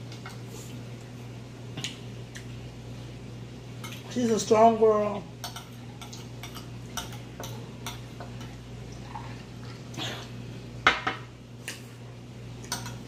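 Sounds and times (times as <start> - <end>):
steady low hum: 0.0 - 13.0
forks clinking on glass plates: 5.4 - 8.6, 12.7 - 13.0.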